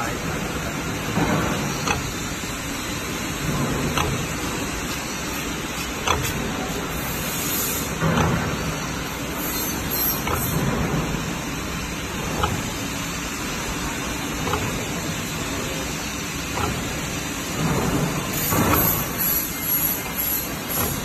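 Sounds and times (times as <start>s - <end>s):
filling machine hissing: 0.1s - 21.0s.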